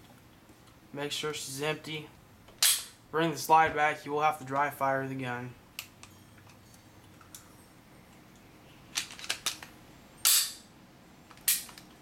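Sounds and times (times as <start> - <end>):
pistol slide clicks and clacks: 11.4 - 11.9.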